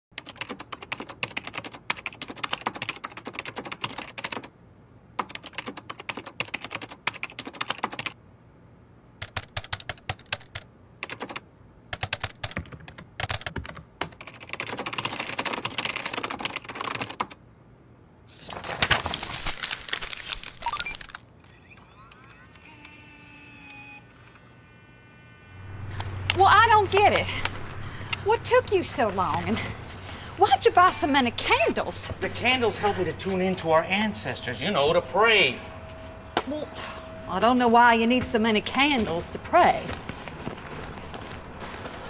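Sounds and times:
rapid keyboard typing: 0.2 - 4.5, 5.2 - 8.2, 9.2 - 17.4.

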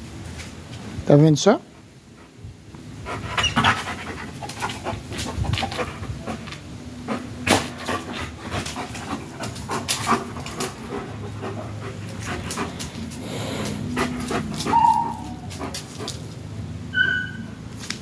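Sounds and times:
dog panting and whimpering: 3.0 - 16.4
dog whining: 14.2 - 15.6, 16.9 - 17.6.

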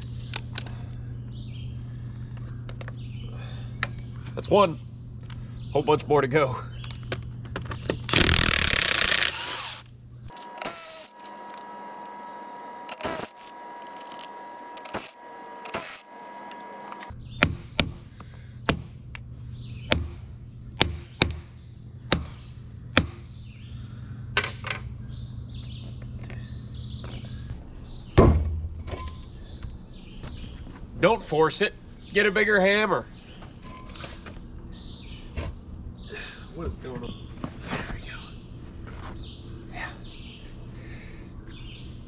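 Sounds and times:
impact wrench running: 8.1 - 17.1.

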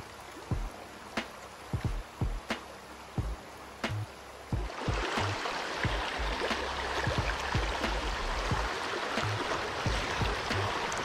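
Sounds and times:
creek rushing over stones: 0.0 - 11.0
low thumps on microphone: 1.8 - 2.5, 3.2 - 5.3.

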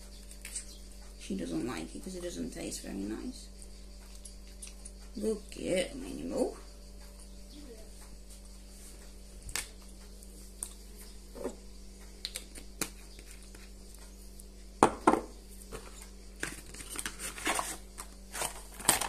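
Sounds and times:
low electrical hum: 0.0 - 19.0.

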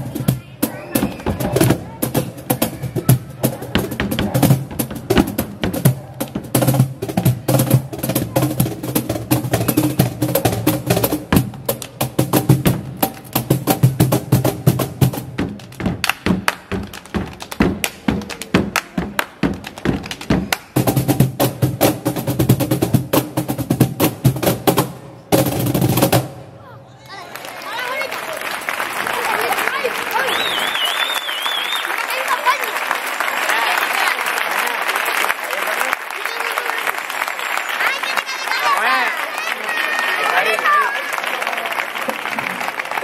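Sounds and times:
cajon flamenco rhythm: 0.0 - 26.2.

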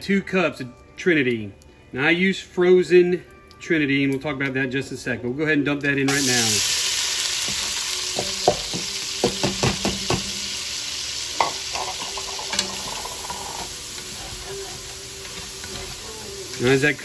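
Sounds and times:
vegetables sizzling in fat: 6.1 - 17.0
utensil knocking against pot: 8.2 - 10.4.

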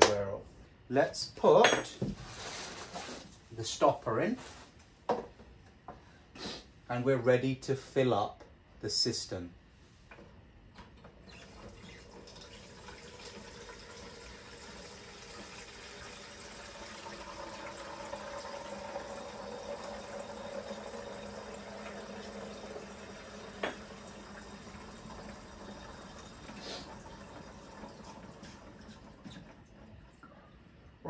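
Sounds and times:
water filling cistern: 11.1 - 31.0.

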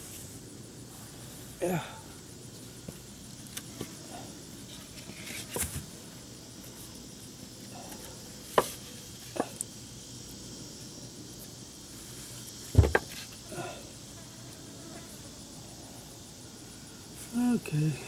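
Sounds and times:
wooden blocks knocking: 12.8 - 13.1.

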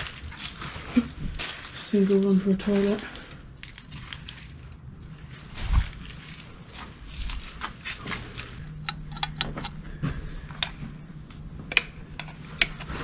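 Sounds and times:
footsteps crunching on debris: 0.0 - 8.6
low steady hum: 0.0 - 13.0.

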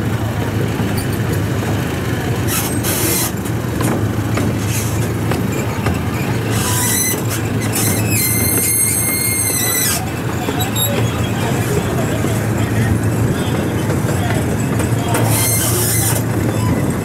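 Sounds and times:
train engine hum and rumble: 0.0 - 17.0
high steady squeal: 4.6 - 17.0.

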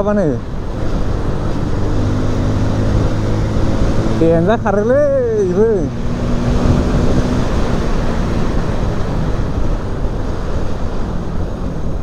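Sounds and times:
wind buffeting microphone: 5.0 - 12.0.

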